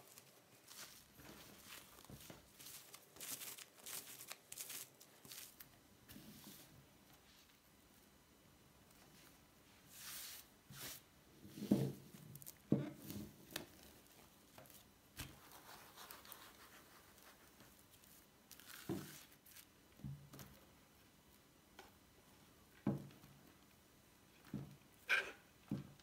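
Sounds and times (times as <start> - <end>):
cling film crinkling: 0.0 - 5.7.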